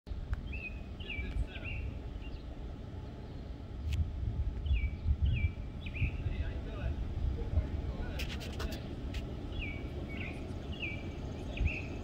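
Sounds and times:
wind buffeting microphone: 0.1 - 12.0
small bird calling: 0.4 - 3.9, 4.6 - 6.4, 9.5 - 12.0.

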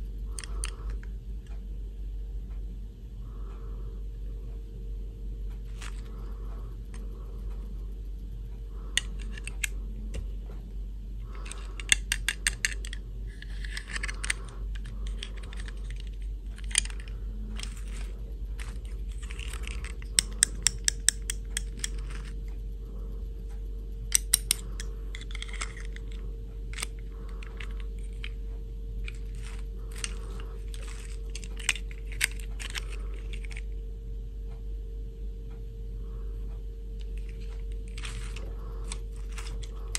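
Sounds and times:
faint steady hum: 0.0 - 39.9
plastic clicks and snaps: 11.2 - 22.4, 23.6 - 28.4.

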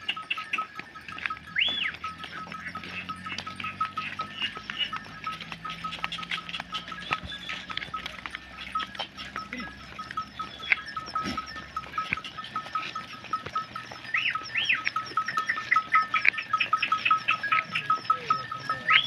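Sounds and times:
hooves clicking on road: 0.0 - 19.0
fast high chirping pulse: 0.1 - 19.0
goats bleating: 1.5 - 14.8.

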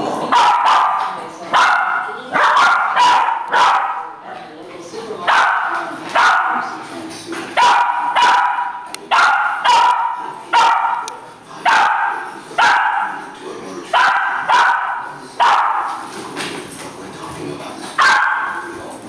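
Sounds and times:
small dog barking: 0.3 - 4.2, 5.3 - 6.7, 7.6 - 13.2, 13.9 - 16.0, 18.0 - 18.7.

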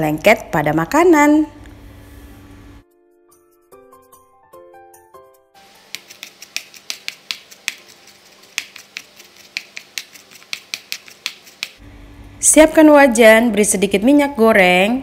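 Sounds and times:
knife chopping on plastic board: 5.8 - 11.8.

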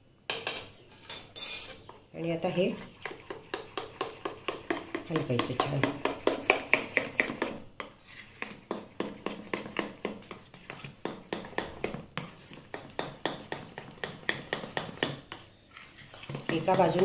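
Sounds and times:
spoon clinking in steel bowl: 0.3 - 1.9.

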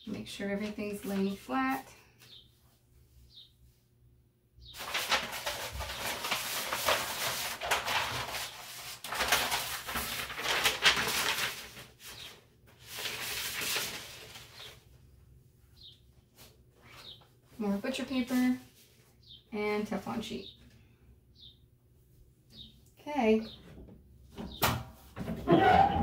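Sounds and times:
paper rustling and crinkling: 4.8 - 14.9.

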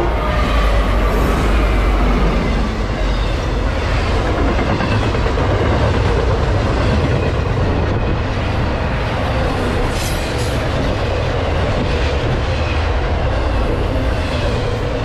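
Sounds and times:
freight train rumbling past: 0.0 - 15.0.

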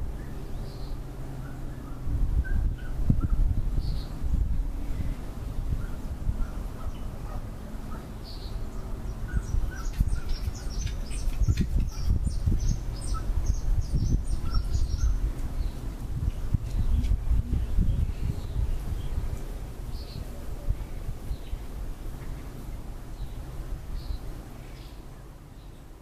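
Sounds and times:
low gusting rumble: 0.0 - 24.5
birds chirping: 0.0 - 26.0
high bird calls: 5.8 - 15.8.

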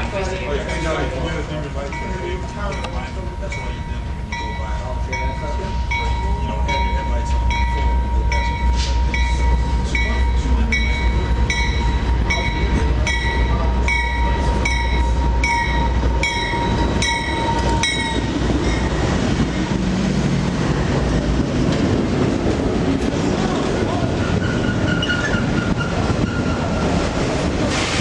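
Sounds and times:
train bell ringing: 0.0 - 19.8
diesel engine rumble: 0.0 - 28.0.

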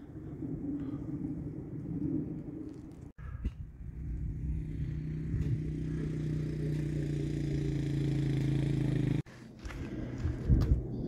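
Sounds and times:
airplane engine drone overhead: 0.0 - 11.0.

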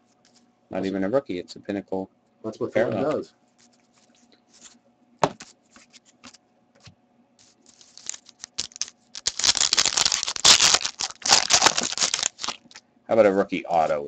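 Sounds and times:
plastic wrapper tearing and crinkling: 7.4 - 12.8.

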